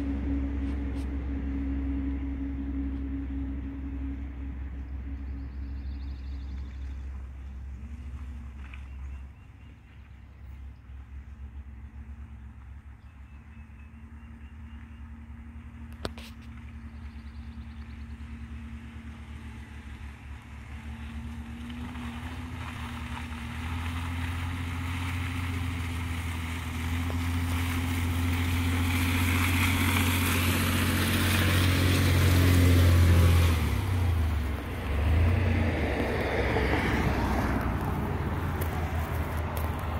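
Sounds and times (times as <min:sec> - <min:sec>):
pickup truck engine under load: 0:15.7 - 0:39.9.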